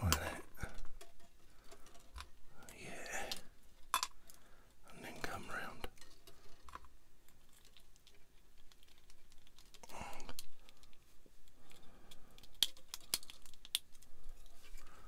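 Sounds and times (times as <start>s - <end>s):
plastic parts clicking: 5.9s - 14.9s.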